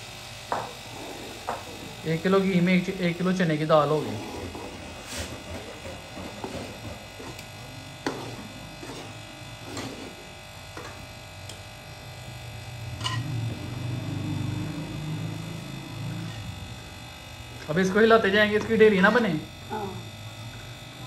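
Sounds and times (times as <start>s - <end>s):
steady low buzz: 0.0s - 21.0s
metal spoon scraping a pan: 4.0s - 11.0s, 13.0s - 13.4s.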